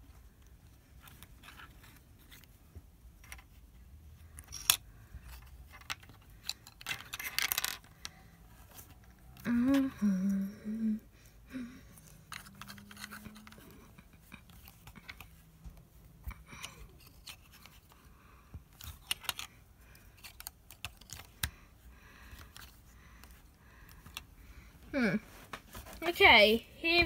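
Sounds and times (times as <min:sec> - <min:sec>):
plastic parts clicking: 0:03.2 - 0:09.9, 0:12.0 - 0:15.4, 0:18.7 - 0:21.6.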